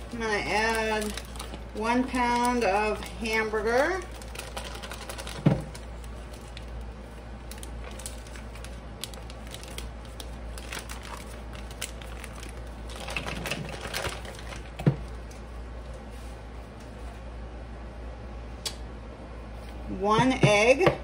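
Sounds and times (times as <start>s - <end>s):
plastic packaging crinkling: 0.0s - 15.5s.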